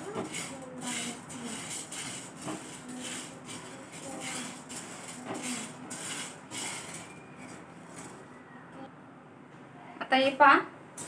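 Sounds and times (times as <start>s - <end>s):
pearls scraping in a frying pan: 0.0s - 8.4s.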